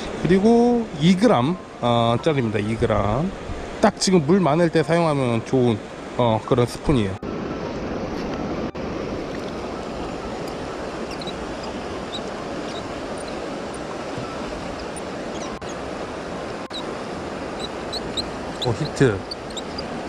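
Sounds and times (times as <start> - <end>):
river water rushing over rocks: 7.3 - 20.0.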